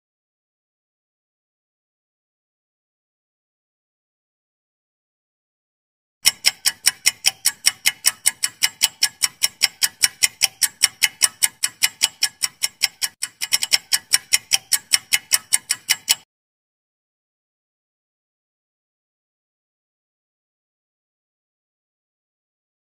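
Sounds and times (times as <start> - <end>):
fast clock ticking: 6.2 - 16.3.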